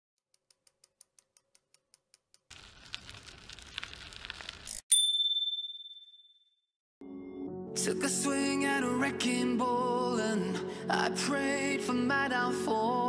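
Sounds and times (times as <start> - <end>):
bicycle bell ding: 4.9 - 6.6.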